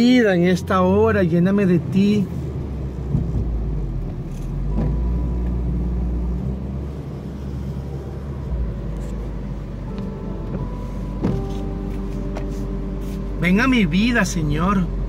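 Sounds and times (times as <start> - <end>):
car driving rumble: 0.0 - 15.0
soft sustained music notes: 4.6 - 15.0.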